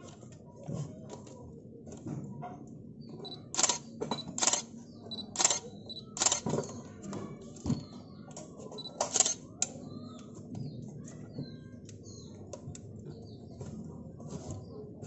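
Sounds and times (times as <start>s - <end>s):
small mechanical clicks: 3.2s - 6.6s, 8.8s - 9.7s
camera shutter clicking: 3.6s - 3.8s, 4.4s - 4.7s, 5.4s - 5.6s, 6.2s - 6.5s.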